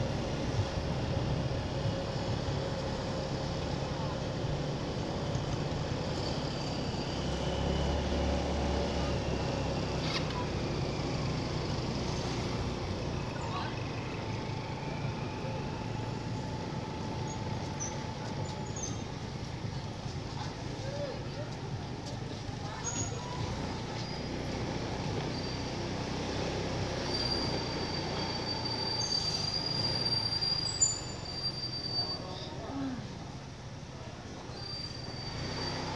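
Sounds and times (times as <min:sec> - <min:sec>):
market street background hum: 0:00.0 - 0:35.9
vehicle engine and road noise: 0:00.0 - 0:35.9.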